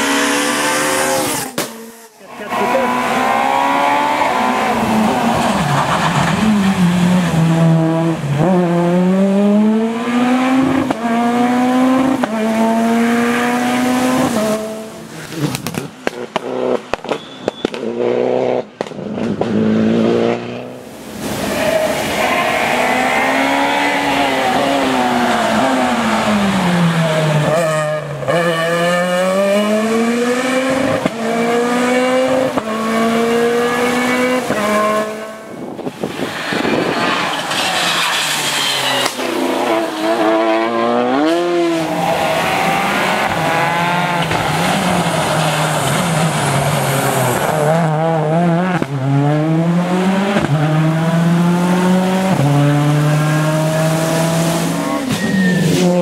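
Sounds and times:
rally car engines revving hard: 0.0s - 56.0s.

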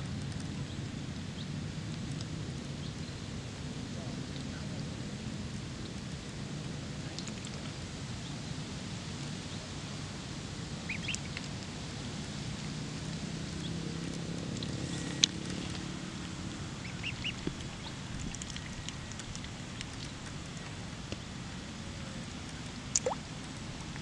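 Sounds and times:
low background noise: 0.0s - 24.0s
duckling peeping: 10.9s - 11.3s, 16.8s - 20.7s.

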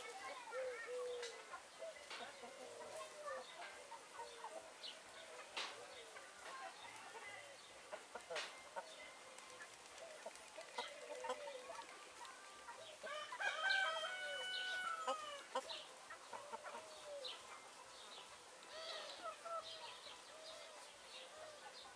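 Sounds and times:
chickens clucking: 0.0s - 21.9s
rooster crowing: 13.1s - 15.5s.

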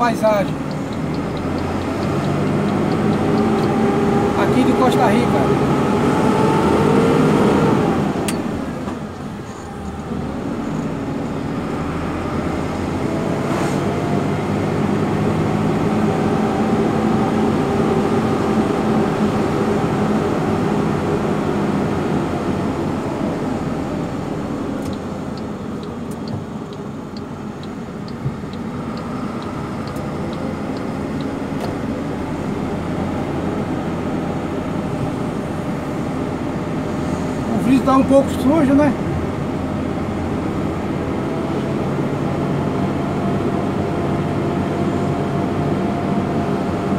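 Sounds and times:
vehicle engine and road noise: 0.0s - 46.9s
light regular ticking: 0.1s - 4.0s, 24.8s - 31.6s.

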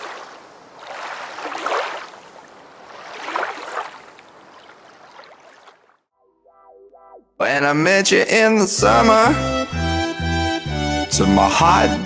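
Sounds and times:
waves washing over pebbles: 0.0s - 5.5s.

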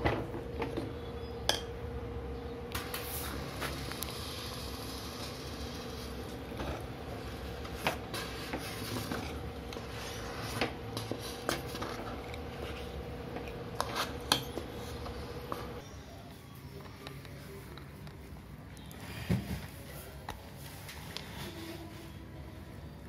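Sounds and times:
steady hum: 0.0s - 23.0s
metal spoon stirring thick batter: 4.0s - 15.9s.

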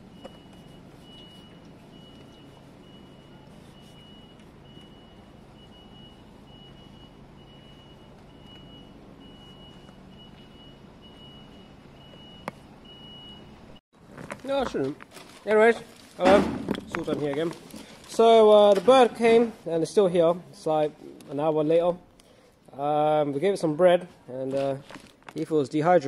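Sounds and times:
reversing alarm beeping: 0.0s - 13.8s.

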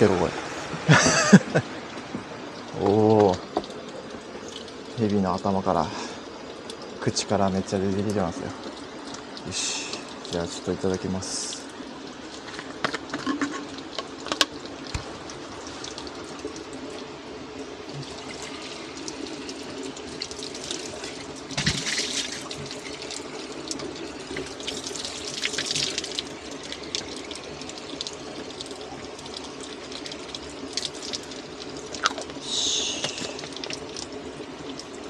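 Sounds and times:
water splashing into basin: 17.8s - 34.9s
water splashing into cup: 17.9s - 34.2s.

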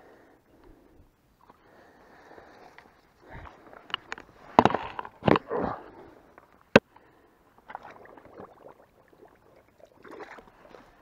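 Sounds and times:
water splashing: 7.6s - 11.0s.

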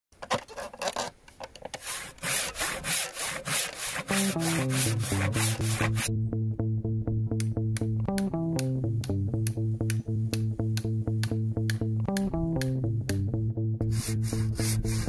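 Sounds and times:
hand saw cutting log: 0.4s - 6.1s, 13.8s - 15.0s
bass guitar music: 4.1s - 15.0s.

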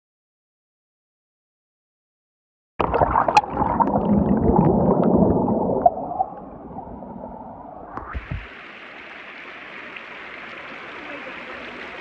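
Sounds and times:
river water churning and gurgling: 2.9s - 12.0s.

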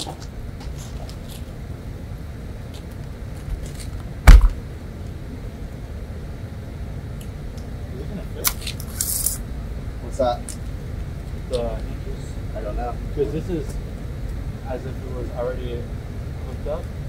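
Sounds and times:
steady low rumble: 0.0s - 17.0s
loud thump: 4.2s - 4.6s.

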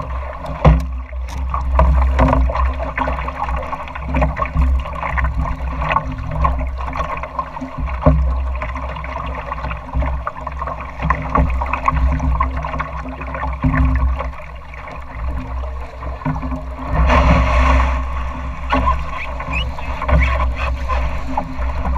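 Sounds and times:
water lapping against a boat hull: 0.0s - 21.9s
loud water splash: 16.8s - 21.9s.

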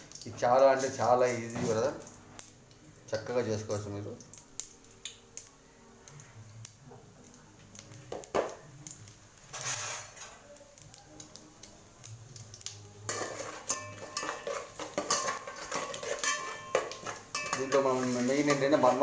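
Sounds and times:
spices frying in oil: 0.0s - 19.0s
spatula scraping metal pot: 9.5s - 10.3s, 13.1s - 19.0s.

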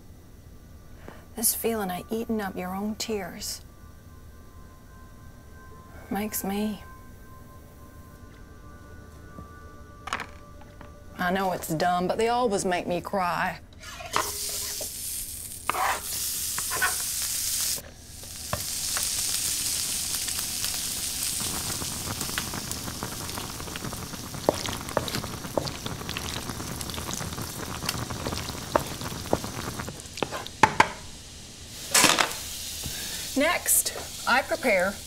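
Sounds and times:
vegetables sizzling in a frying pan: 13.8s - 35.0s
spatula scraping and tapping pan: 15.7s - 17.1s, 24.4s - 26.3s, 30.2s - 31.0s.

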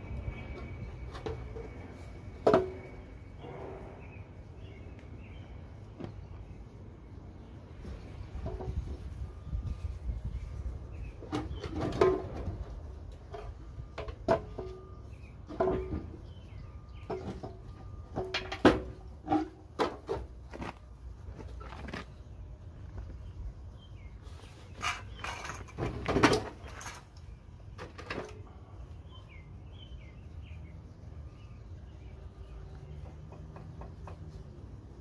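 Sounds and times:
metal clanks and knocks: 0.5s - 4.1s, 11.2s - 20.8s, 24.8s - 28.4s
birds chirping faintly: 20.6s - 34.9s.

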